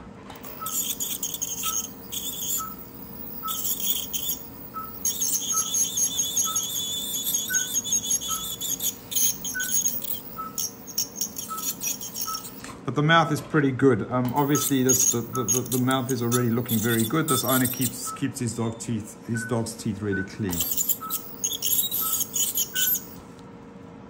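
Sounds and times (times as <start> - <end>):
dental scaler hiss and whine: 0.4 - 12.6, 14.3 - 18.1, 20.5 - 23.2
monitor beeping: 0.4 - 12.6, 14.3 - 23.2.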